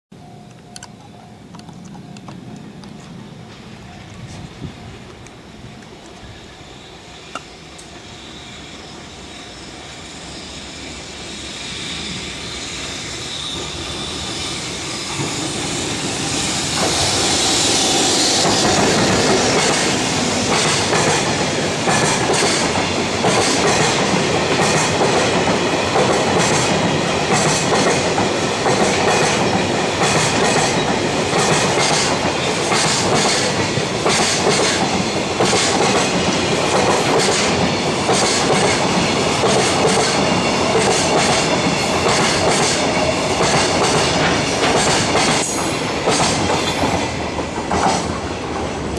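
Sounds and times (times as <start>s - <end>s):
freight train rumbling past: 0.2s - 48.9s
wheels clacking over rail joints: 16.2s - 48.9s.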